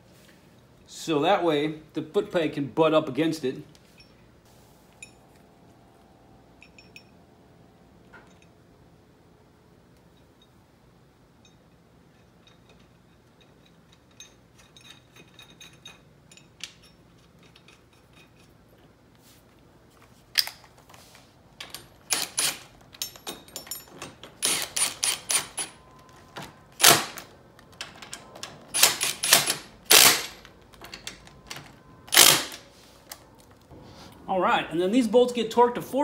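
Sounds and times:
metal tools clinking: 0:03.8 - 0:04.3, 0:04.9 - 0:05.6, 0:06.5 - 0:07.3, 0:11.4 - 0:18.8, 0:21.6 - 0:33.6
hand ratchet clicking: 0:24.3 - 0:25.8, 0:28.7 - 0:31.2, 0:32.1 - 0:32.6.

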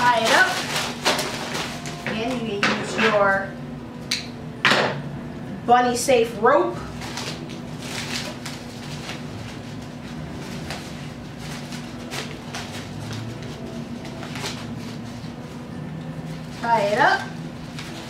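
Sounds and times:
paper bag crinkling: 0:00.0 - 0:02.5, 0:06.8 - 0:18.0
steady low hum: 0:00.0 - 0:18.0.

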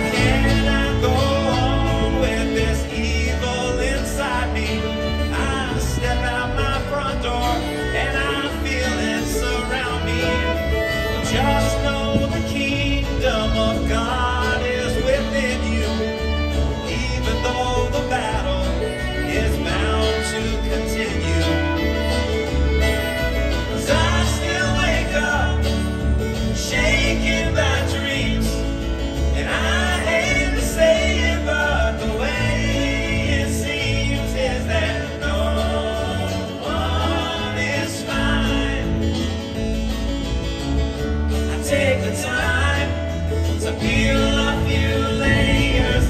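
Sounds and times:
man singing: 0:00.0 - 0:39.6, 0:41.3 - 0:46.0
bluegrass string band playing: 0:00.0 - 0:46.0
upright bass plucking: 0:00.0 - 0:46.0.

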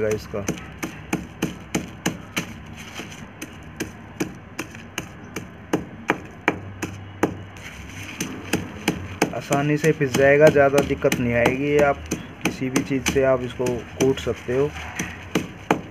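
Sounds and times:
pounding knocks on concrete floor: 0:15.0 - 0:15.9.

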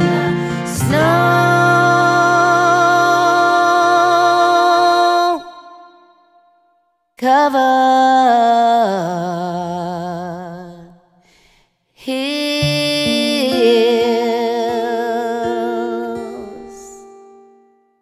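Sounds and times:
plucked guitar: 0:00.0 - 0:06.1, 0:12.3 - 0:18.0.

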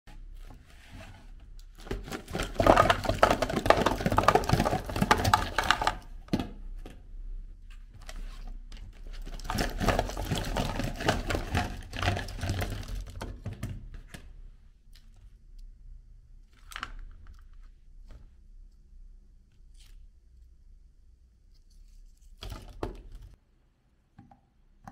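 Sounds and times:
plastic cups clattering: 0:01.6 - 0:07.0, 0:08.9 - 0:14.3.

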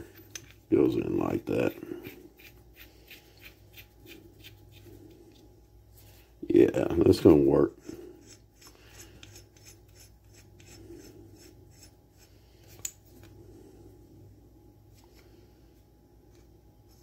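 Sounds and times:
metal tool rubbing: 0:07.7 - 0:12.3.

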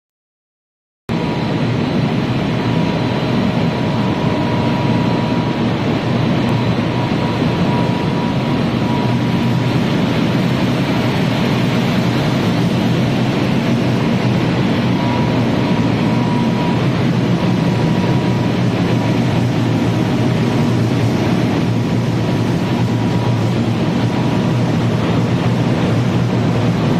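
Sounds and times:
factory machinery humming and rumbling: 0:01.1 - 0:26.9.

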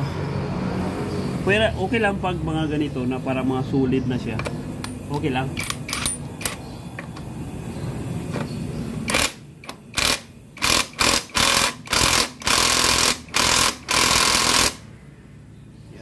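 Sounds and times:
impact wrench hammering: 0:09.1 - 0:14.8.

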